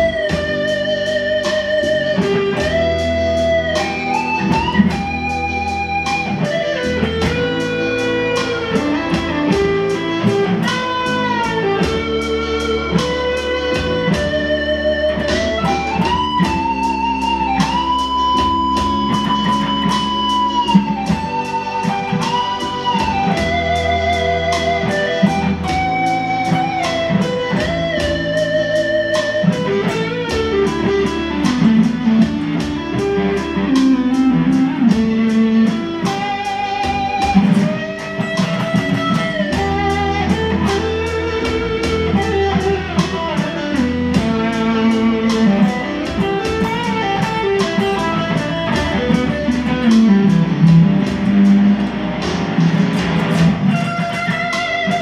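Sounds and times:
electric guitar lead line: 0.0s - 55.0s.

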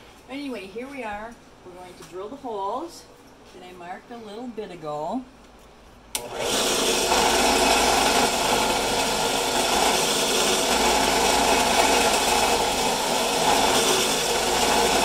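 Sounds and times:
drill press boring wood: 6.2s - 15.0s.

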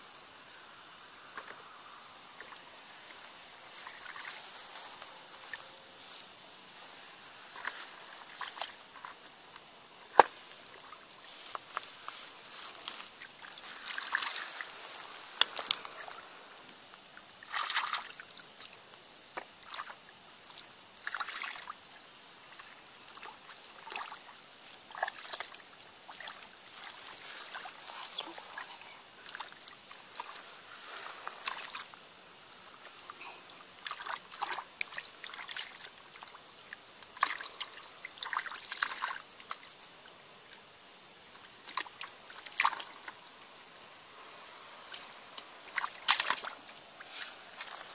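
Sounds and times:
hands splashing in muddy water: 45.7s - 46.6s.

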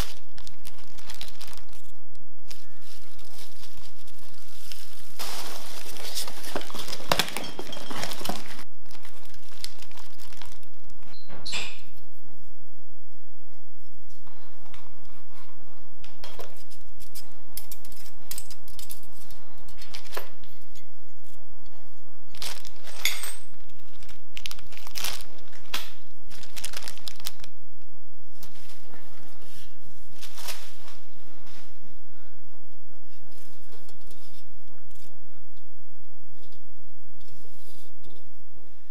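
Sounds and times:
paper and plastic wrap rustling: 0.0s - 10.9s, 22.3s - 27.6s, 28.3s - 31.8s
low background noise: 0.0s - 38.9s.

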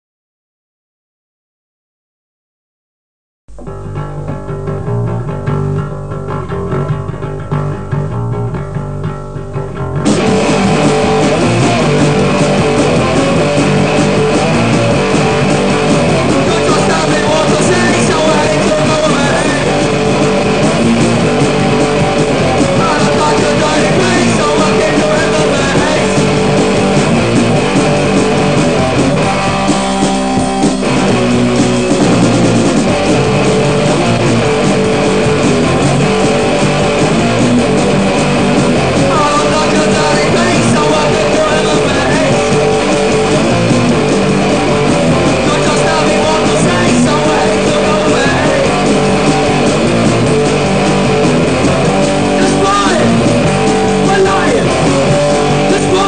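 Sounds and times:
hardcore punk band with guitars: 3.5s - 56.0s.

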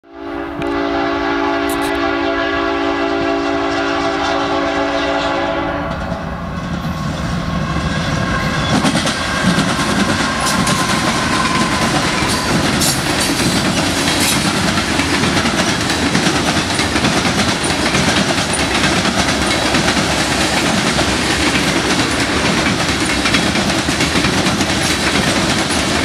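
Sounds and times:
locomotive air horn chord: 0.1s - 6.0s
train wheels clickety-clack: 3.2s - 26.0s.

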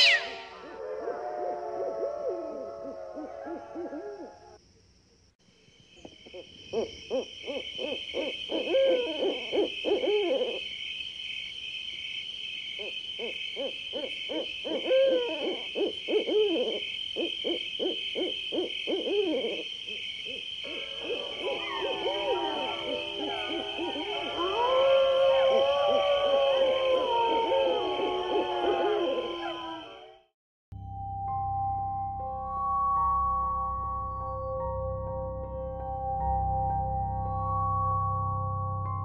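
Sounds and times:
owl hooting: 0.0s - 1.2s, 1.8s - 4.6s, 6.2s - 10.6s, 12.8s - 30.1s
high chirring trill: 20.7s - 24.8s.

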